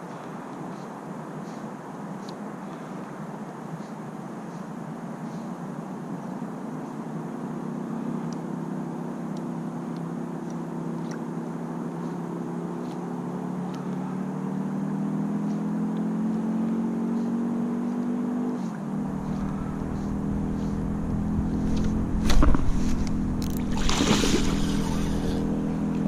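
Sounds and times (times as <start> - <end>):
engine running: 18.6 - 26.0.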